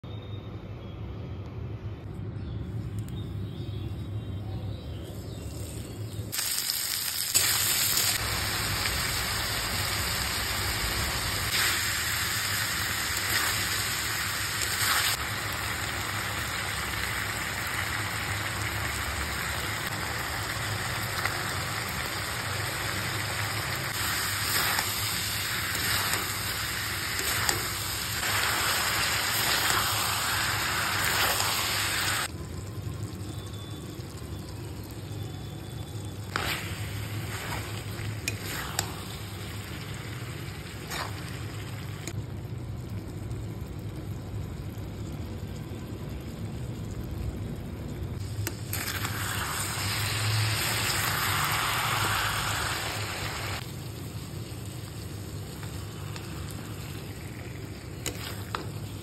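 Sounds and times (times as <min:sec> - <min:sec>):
food sizzling in a pan: 0:05.3 - 0:32.3, 0:33.0 - 0:42.2, 0:48.1 - 0:59.0.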